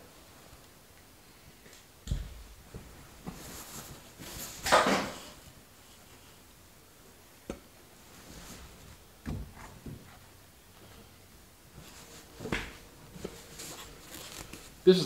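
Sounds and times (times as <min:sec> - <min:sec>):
rustling scrape: 0:13.2 - 0:14.8.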